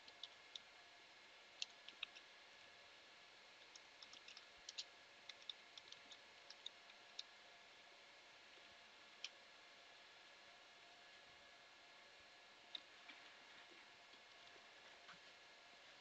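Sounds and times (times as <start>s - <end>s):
room tone hiss: 0.0s - 16.0s
computer keyboard typing: 3.7s - 7.3s.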